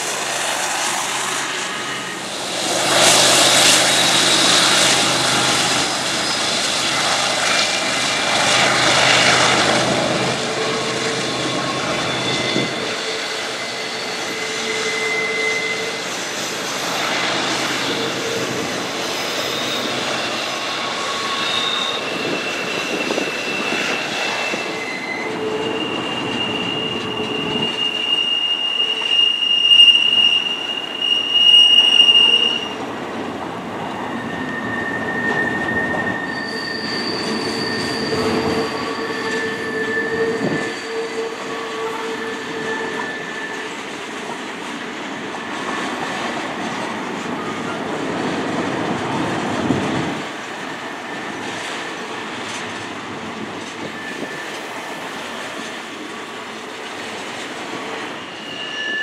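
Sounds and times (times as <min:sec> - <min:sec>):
locomotive engines humming: 0:00.0 - 0:59.0
train wheels squealing on rails: 0:00.0 - 0:59.0.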